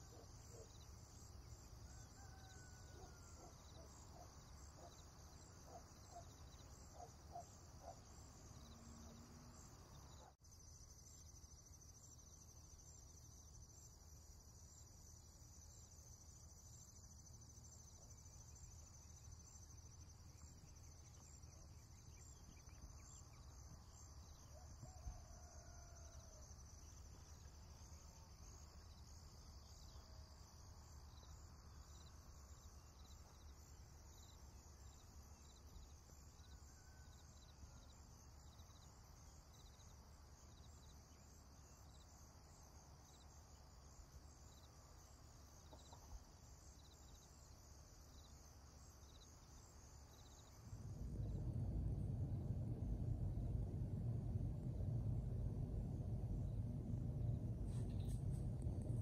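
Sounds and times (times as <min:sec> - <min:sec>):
high-pitched insect chirping: 0:26.0 - 0:50.9
low steady hum: 0:48.8 - 0:59.0.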